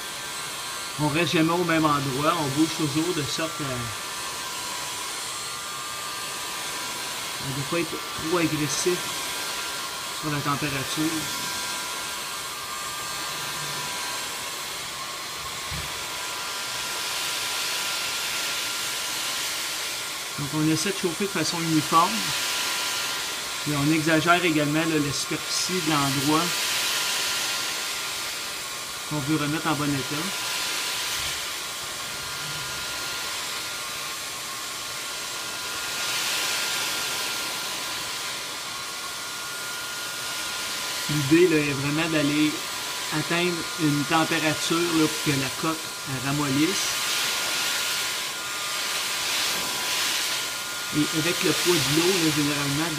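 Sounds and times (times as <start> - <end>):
heat gun blowing hot air: 0.0 - 52.9.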